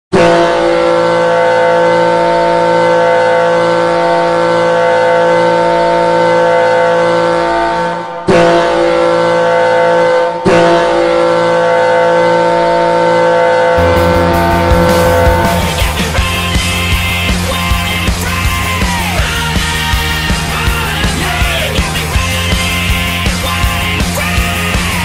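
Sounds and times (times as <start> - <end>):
hockey goal horn blasting: 0.1 - 19.1.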